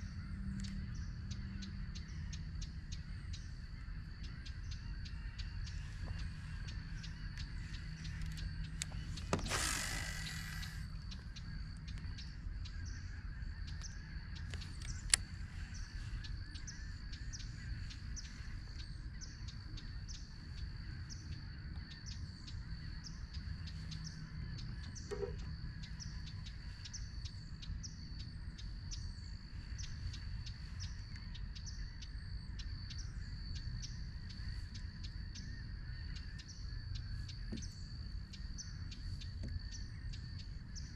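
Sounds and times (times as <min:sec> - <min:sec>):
birds chirping: 0:00.0 - 0:40.9
low wind rumble: 0:00.0 - 0:40.9
sharp click: 0:08.1 - 0:11.1.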